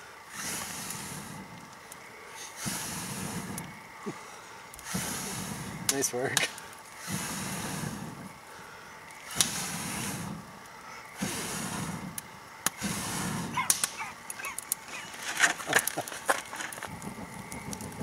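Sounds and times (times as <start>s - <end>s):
person blowing on tinder: 0.3s - 1.5s, 2.4s - 4.2s, 4.8s - 5.9s, 7.0s - 8.4s, 9.3s - 10.5s, 11.2s - 16.1s
kindling cracking and snapping: 13.6s - 18.0s.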